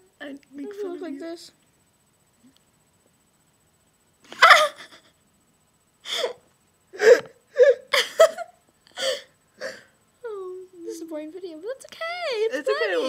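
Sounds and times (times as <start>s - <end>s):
girls laughing: 4.3s - 5.1s, 7.9s - 8.6s.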